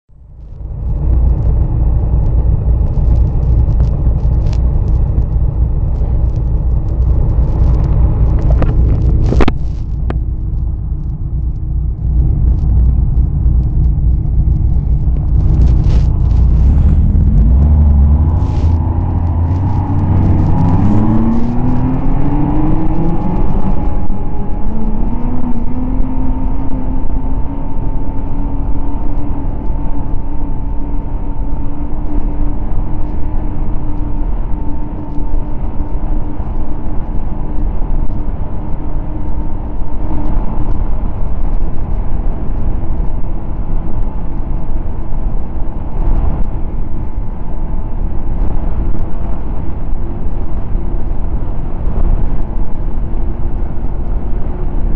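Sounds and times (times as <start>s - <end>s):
snowmobile engine: 1.1s - 28.2s.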